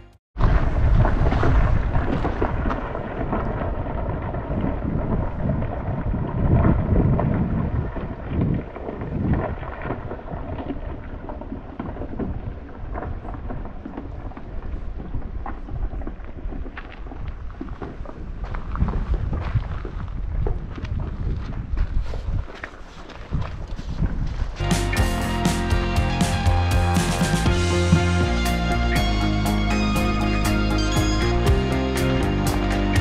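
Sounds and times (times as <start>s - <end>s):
wind buffeting microphone: 0.4s - 25.0s.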